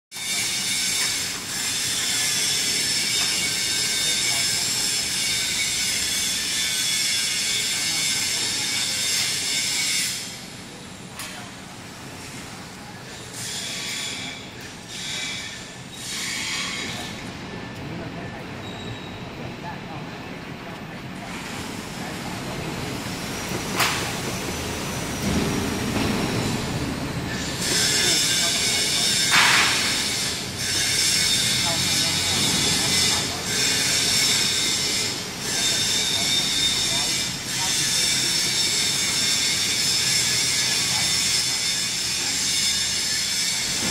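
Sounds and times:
factory workshop noise: 0.1s - 43.9s
sharp clack: 29.2s - 30.0s.

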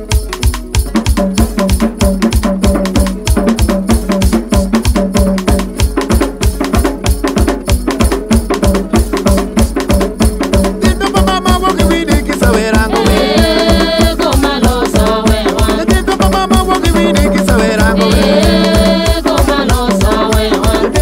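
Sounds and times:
fast drum and rattle beat: 0.0s - 21.0s
melodic line: 0.8s - 14.2s.

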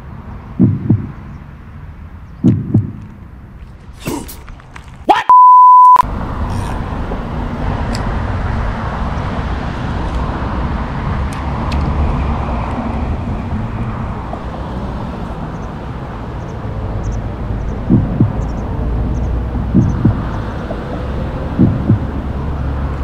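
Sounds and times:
road traffic rumble: 0.0s - 5.1s, 5.8s - 23.0s
censor bleep: 5.3s - 6.0s
wind on microphone: 6.2s - 23.0s.

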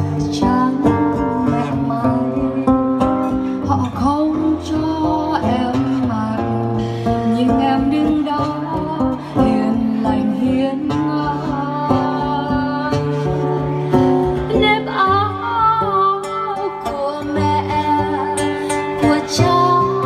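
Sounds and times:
acoustic guitar: 0.0s - 20.0s
woman singing into a microphone: 0.0s - 20.0s.

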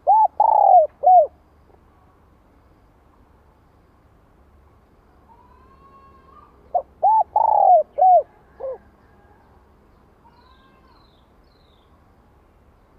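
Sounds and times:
dove cooing: 0.0s - 1.4s, 6.7s - 8.9s.

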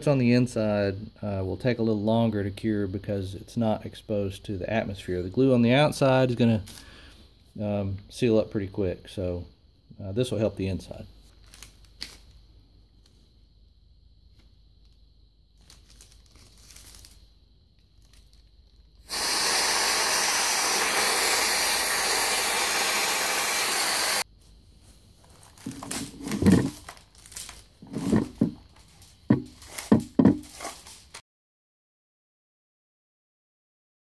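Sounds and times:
compressed air hissing: 19.0s - 24.3s
clunks and rustles of handling: 25.2s - 31.2s.

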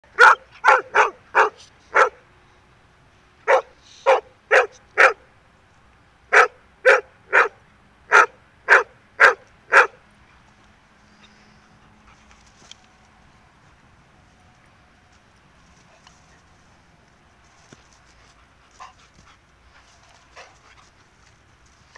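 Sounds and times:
dog barking: 0.2s - 2.2s, 3.5s - 5.2s, 6.3s - 10.0s.

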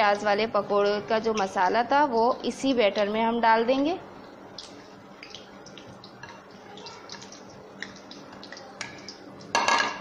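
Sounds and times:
deep-frying sizzle with pops: 0.0s - 10.0s.

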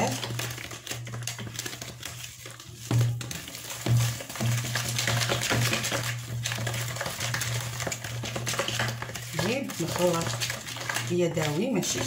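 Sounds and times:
whisk scraping plastic bowl: 0.0s - 12.0s.

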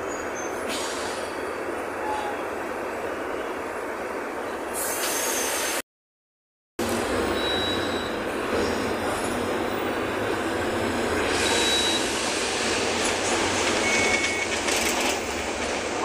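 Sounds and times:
road noise: 0.0s - 5.6s, 6.8s - 16.0s
bus engine running: 6.8s - 16.0s.

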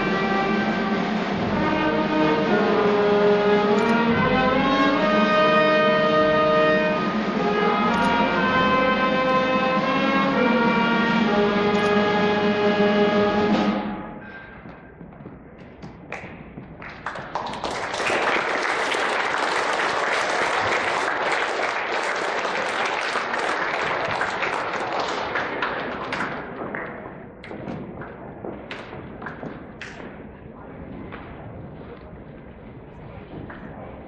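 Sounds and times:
audience applauding: 16.1s - 26.5s
single claps: 16.1s - 28.1s.

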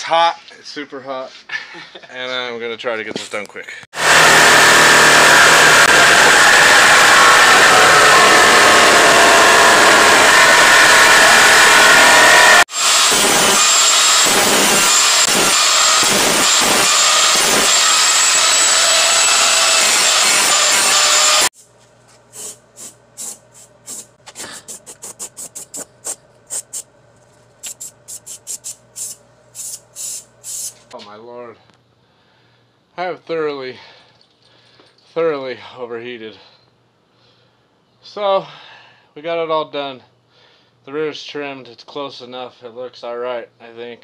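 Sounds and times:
reciprocating saw cutting: 4.0s - 21.7s, 22.3s - 26.9s, 27.6s - 30.9s
spray paint can hissing: 22.3s - 26.9s, 27.6s - 30.9s.

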